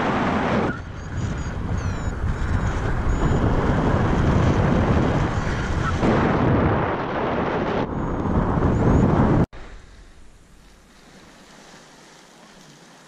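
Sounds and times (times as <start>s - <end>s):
wind rushing over microphone: 0.0s - 9.8s.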